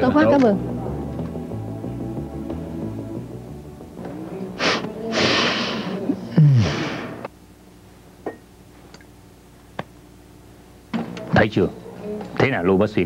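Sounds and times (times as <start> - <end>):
background music: 0.0 - 6.3
sharp sniffs: 4.6 - 6.0
man breathing loudly: 4.6 - 7.3
man sighing: 4.6 - 7.3.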